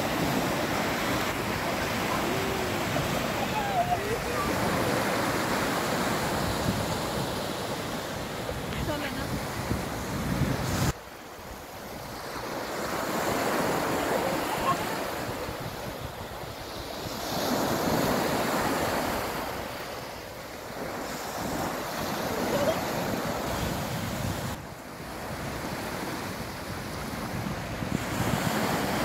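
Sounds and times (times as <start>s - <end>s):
small waves breaking on sand: 0.0s - 29.0s.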